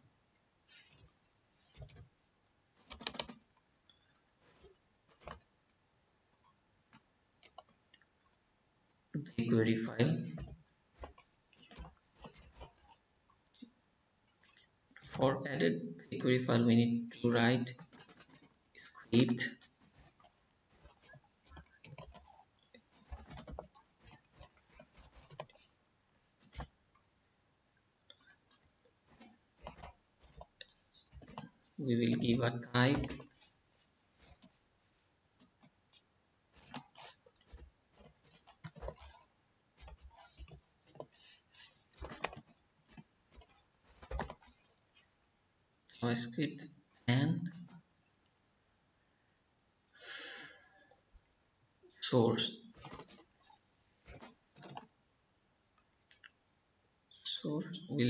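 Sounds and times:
keystrokes on computer keyboard: 0:02.8 - 0:03.4
keyboard typing: 0:02.8 - 0:05.4, 0:17.6 - 0:25.7.

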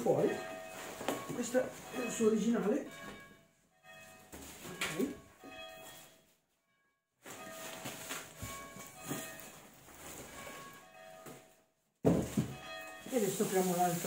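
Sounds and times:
church bells ringing: 0:00.0 - 0:11.8, 0:12.4 - 0:14.0
cardboard boxes rustling and knocking: 0:07.2 - 0:14.0.

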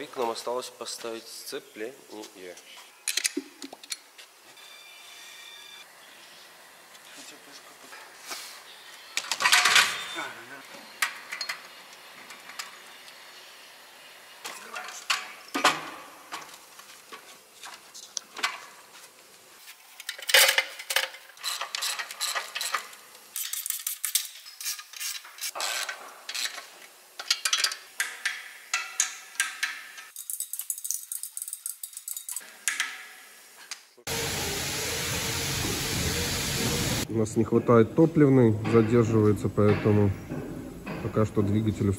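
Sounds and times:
metal tools clinking and clanking: 0:09.3 - 0:10.2, 0:20.0 - 0:33.0
metal knocks: 0:38.6 - 0:41.6.

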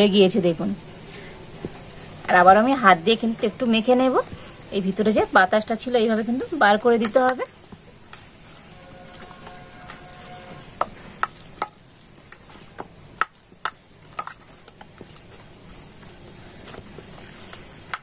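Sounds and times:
dough squelching and slapping: 0:00.0 - 0:18.0.

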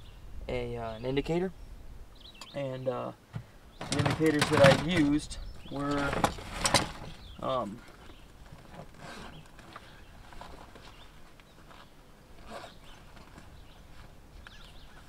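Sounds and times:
faint bird chirps: 0:00.0 - 0:03.9
rustling and soft knocks: 0:03.3 - 0:15.0.

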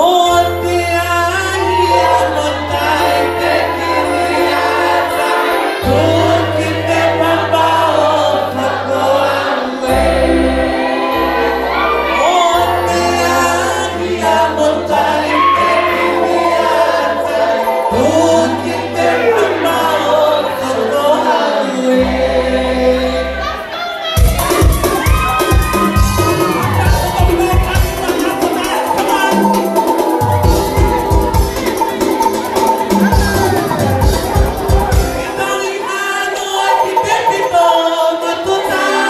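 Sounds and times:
string band playing: 0:00.0 - 0:23.5, 0:24.2 - 0:39.0.

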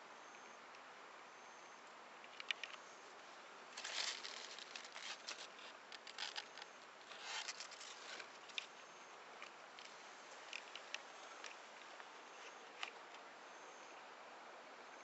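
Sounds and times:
light crackles: 0:02.2 - 0:13.3
leaves and stems rustling: 0:02.4 - 0:13.3.

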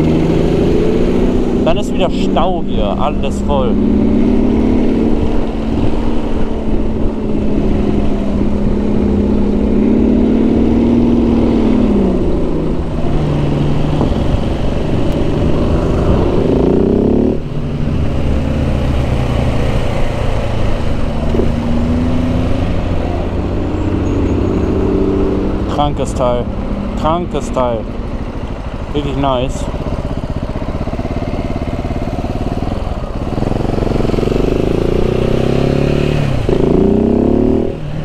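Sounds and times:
loud car engine revving: 0:00.0 - 0:27.9, 0:28.9 - 0:38.0
motorcycle engine: 0:00.0 - 0:38.0
wind noise: 0:03.4 - 0:19.4.

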